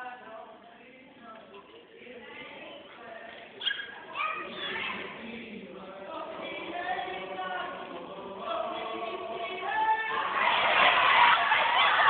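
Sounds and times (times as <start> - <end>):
group chanting in unison: 4.2 - 12.0.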